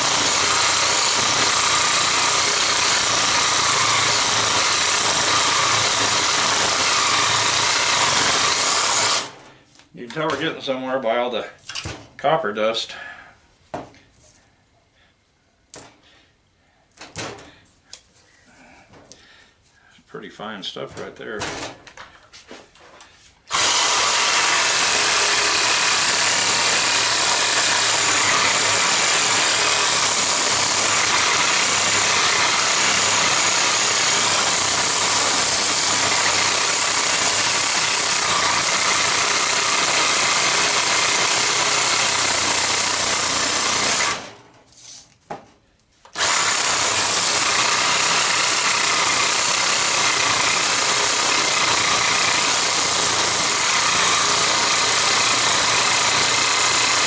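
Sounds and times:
reciprocating saw cutting metal: 0.0s - 9.4s, 23.5s - 44.4s, 46.2s - 57.0s.

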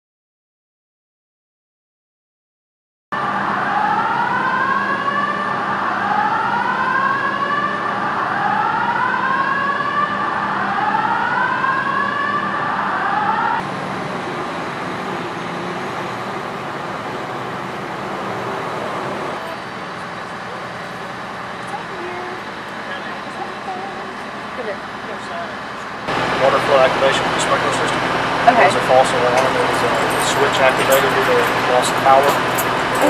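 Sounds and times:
fire engines idling: 3.2s - 33.0s
fire truck sirens wailing: 3.2s - 33.0s.

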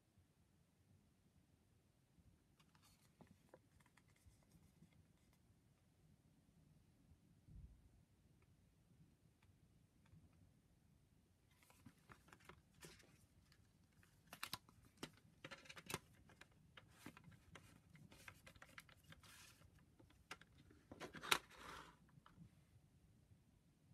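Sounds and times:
paper booklet rustling: 2.6s - 5.4s, 11.5s - 22.0s.

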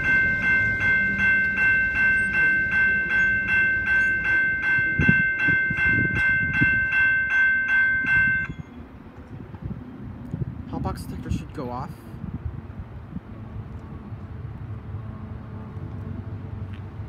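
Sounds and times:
train wheel clunks: 0.0s - 8.6s
railroad crossing bell ringing: 0.0s - 8.8s
freight train rumbling: 0.0s - 9.8s.

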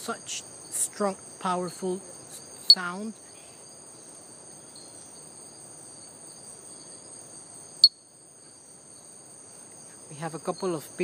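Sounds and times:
high-pitched insect chorus: 0.0s - 11.0s
frog call: 7.8s - 8.1s.

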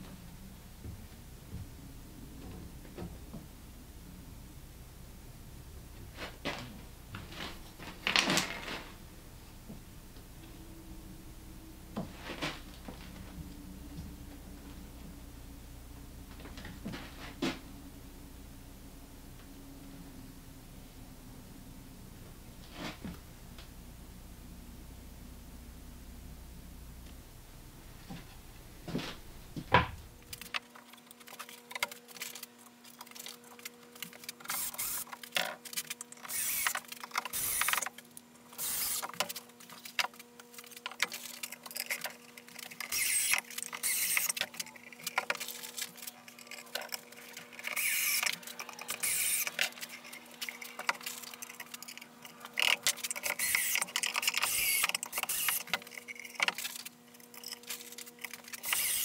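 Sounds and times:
faint steady hum: 0.0s - 59.0s
cordless drill driving screws: 34.4s - 35.2s, 36.2s - 37.9s, 38.5s - 39.1s, 42.8s - 44.4s, 47.5s - 51.2s, 52.6s - 55.8s, 58.5s - 59.0s.

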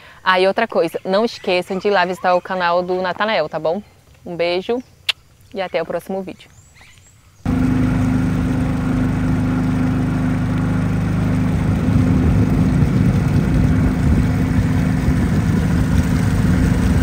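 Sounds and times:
engine humming: 7.5s - 17.0s.

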